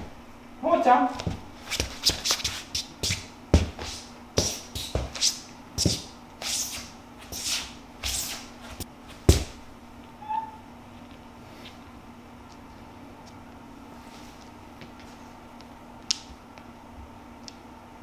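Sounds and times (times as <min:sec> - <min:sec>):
faint steady hum: 0:00.0 - 0:18.0
slipper footsteps on hard floor: 0:01.2 - 0:09.6.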